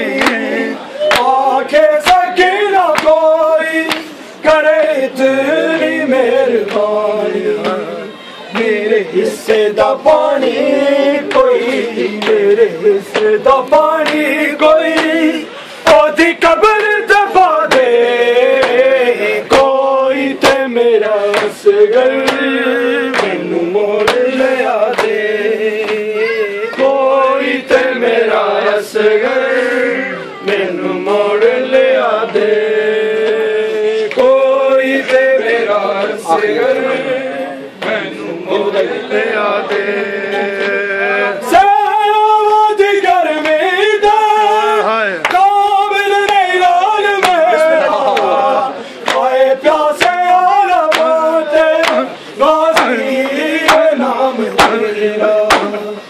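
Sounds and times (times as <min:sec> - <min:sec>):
men chanting a lament: 0:00.0 - 0:56.0
hands slapping on chests: 0:00.2 - 0:01.4, 0:02.9 - 0:03.2, 0:03.8 - 0:04.1, 0:14.0 - 0:15.2, 0:21.3 - 0:22.5, 0:24.9 - 0:25.2, 0:45.2 - 0:45.5, 0:47.2 - 0:47.5, 0:49.0 - 0:49.3, 0:50.8 - 0:54.0, 0:54.6 - 0:55.8.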